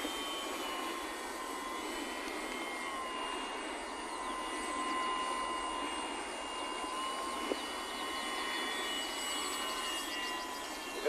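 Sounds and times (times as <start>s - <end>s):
model plane motor whine: 0.0s - 11.0s.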